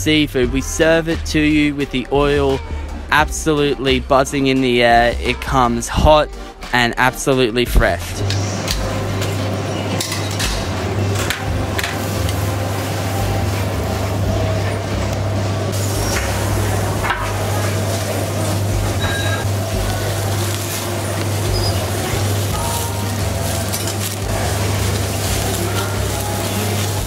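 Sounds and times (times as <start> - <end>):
steak sizzling on a grill: 10.7 - 27.0.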